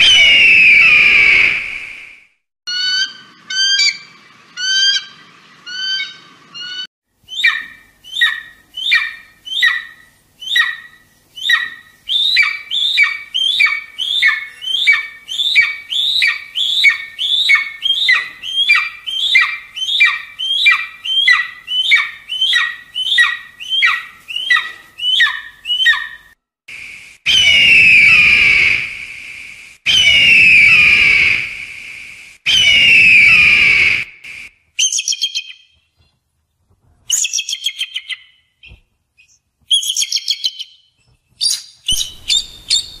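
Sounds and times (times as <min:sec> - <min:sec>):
caracara calling: 0:02.7 - 0:26.4, 0:41.4 - 0:43.0.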